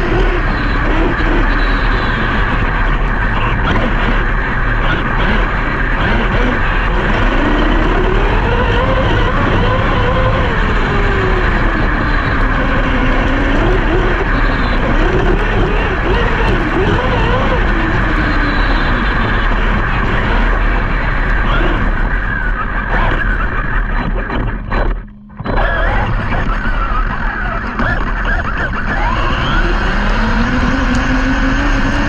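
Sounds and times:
electric motor whining: 0.0 - 32.0
steady rushing noise: 0.0 - 32.0.

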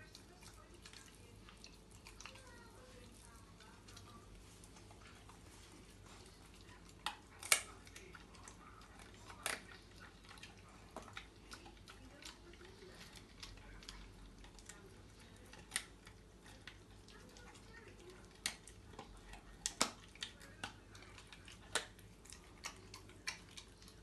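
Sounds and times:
chewing clicks: 0.0 - 5.4, 6.0 - 24.0
puppy crunching bone: 0.0 - 24.0.

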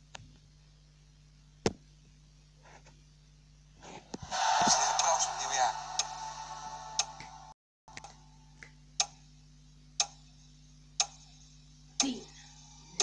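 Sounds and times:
countdown clock ticking: 4.3 - 8.2, 8.8 - 12.4.

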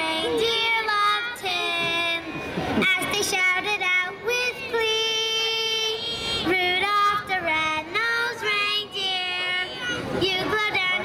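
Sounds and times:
woman singing: 2.8 - 9.6.

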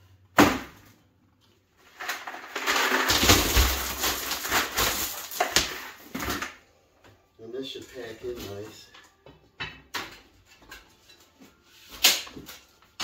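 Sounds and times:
stones clattering as dumped: 2.0 - 6.5.

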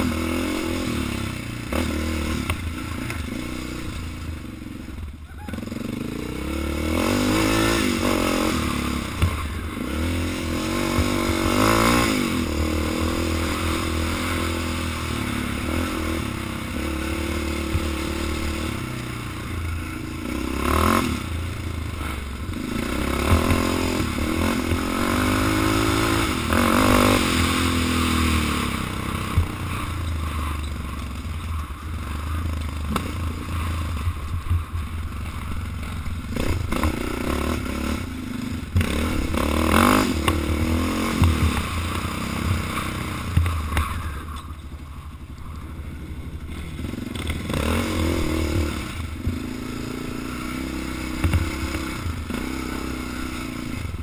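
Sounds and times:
atv engine revving: 0.0 - 54.0
clattering and scraping over bumps: 38.6 - 49.5.

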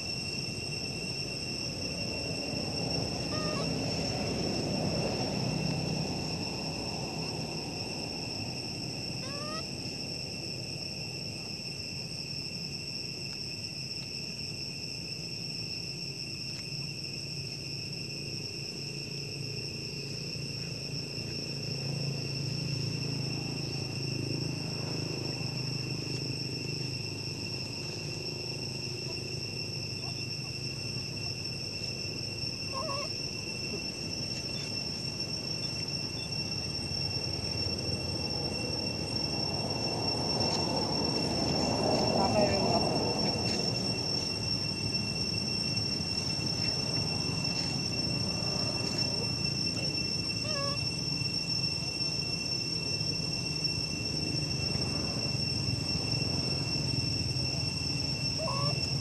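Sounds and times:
insect chorus drone: 0.0 - 59.0
rising chirps: 16.8 - 59.0.

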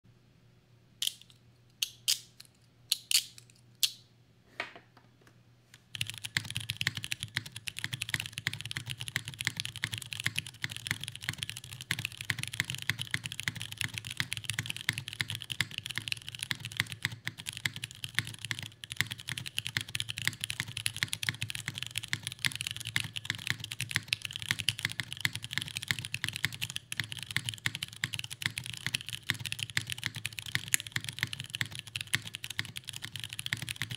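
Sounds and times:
mechanical keyboard typing: 5.9 - 33.9.

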